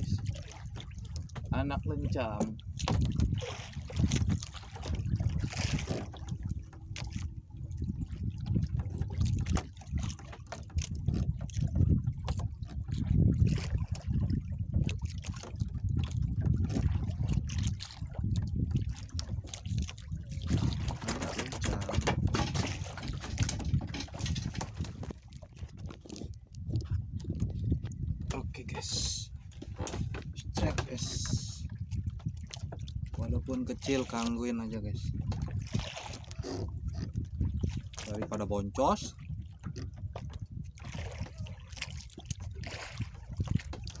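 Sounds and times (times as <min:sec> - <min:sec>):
water lapping against boat hull: 0:00.0 - 0:44.0.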